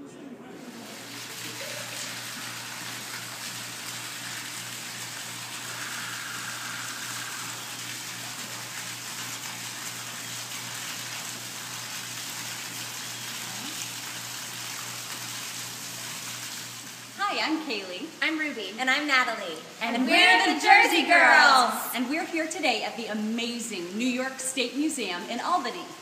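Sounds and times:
rushing water: 0:00.6 - 0:18.0.

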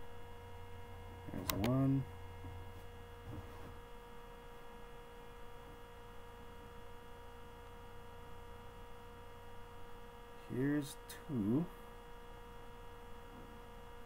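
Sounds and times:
faint constant whine: 0:00.0 - 0:14.0
steady electrical hum: 0:00.0 - 0:14.0.

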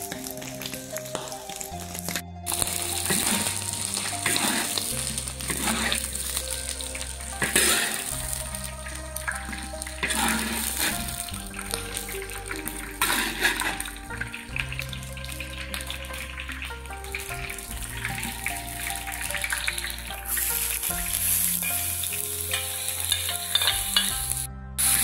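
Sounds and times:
background music with bass: 0:00.0 - 0:25.0
prawns sizzling in hot oil: 0:00.0 - 0:25.0
metal spatula stirring in wok: 0:02.5 - 0:12.1, 0:12.8 - 0:14.0, 0:18.8 - 0:25.0.

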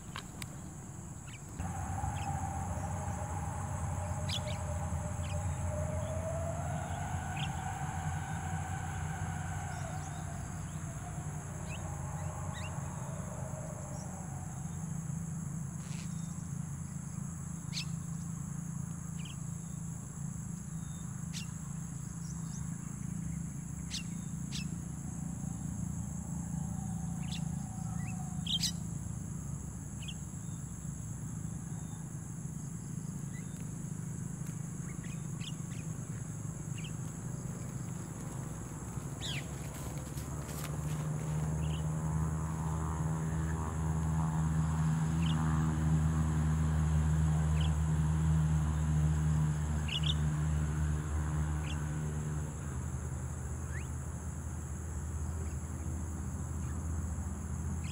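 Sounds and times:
drawn-out calls: 0:00.0 - 0:14.8, 0:34.8 - 0:43.8
low steady rumble: 0:00.0 - 0:19.8
high-pitched insect drone: 0:00.0 - 0:52.3.

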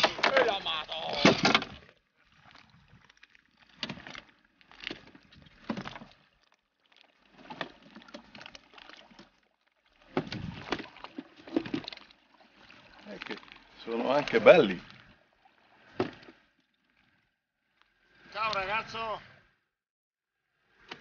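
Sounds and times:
fishing gear knocking and rattling: 0:00.0 - 0:01.9, 0:03.6 - 0:06.2, 0:10.1 - 0:12.0.

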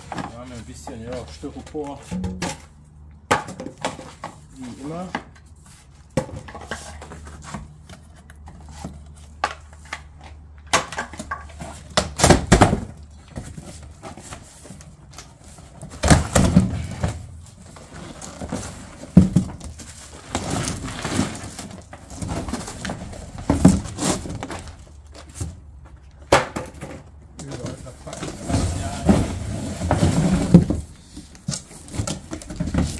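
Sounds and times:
cardboard tearing and rustling: 0:17.7 - 0:25.0.

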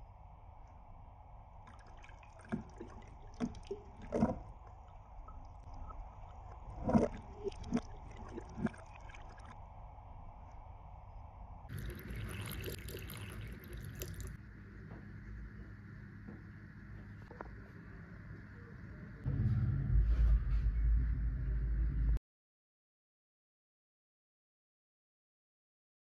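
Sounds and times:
juice pouring into glass: 0:11.7 - 0:14.4
sparkling wine fizzing: 0:11.7 - 0:14.4.

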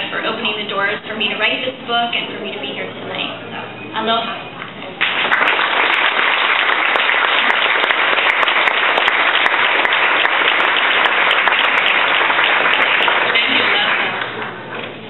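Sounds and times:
audience applauding: 0:05.0 - 0:14.6.

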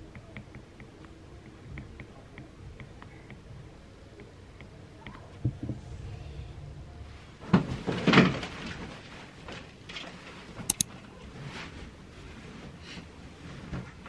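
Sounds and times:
sharp clicks: 0:10.7 - 0:10.9.

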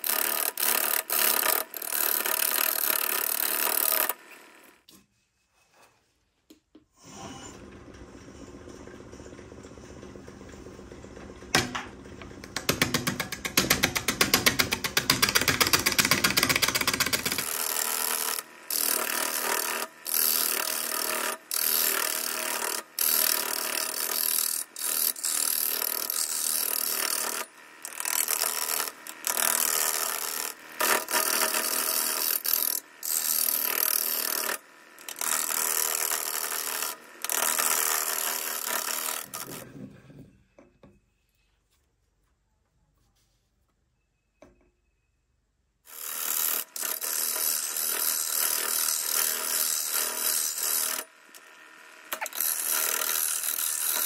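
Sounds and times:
wood lathe rapid clatter: 0:07.6 - 0:39.7, 0:45.9 - 0:51.0, 0:52.1 - 0:54.0.

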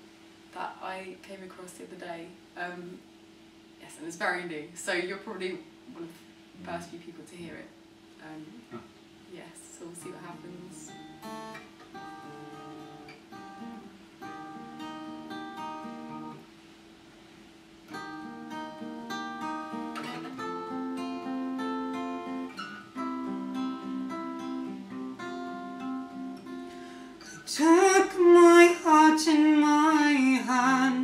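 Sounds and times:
acoustic guitar plucked notes: 0:10.0 - 0:16.4, 0:17.9 - 0:31.0.

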